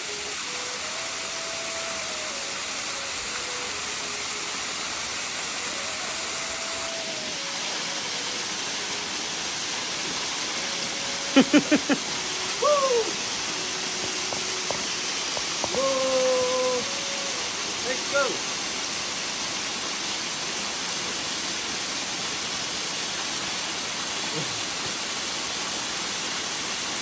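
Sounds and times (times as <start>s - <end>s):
small waterfall rushing: 0.0s - 27.0s
rising and falling call: 11.4s - 14.0s.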